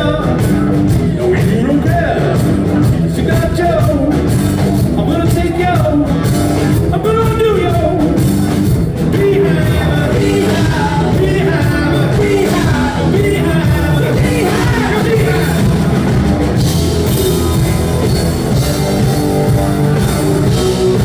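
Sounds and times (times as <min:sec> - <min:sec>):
person singing: 0:00.0 - 0:08.3, 0:08.9 - 0:16.0
drum kit: 0:00.0 - 0:21.0
electric guitars: 0:00.0 - 0:21.0.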